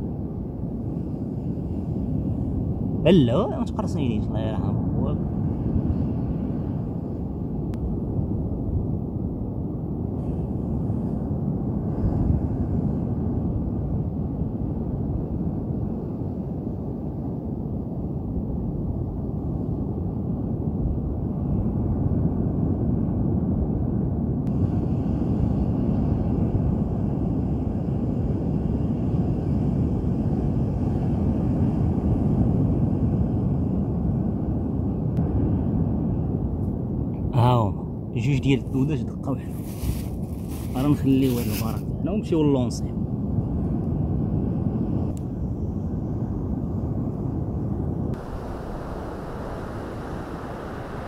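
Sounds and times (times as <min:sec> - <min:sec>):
wind: 0:00.0 - 0:51.0
surf breaking on beach: 0:48.2 - 0:51.0.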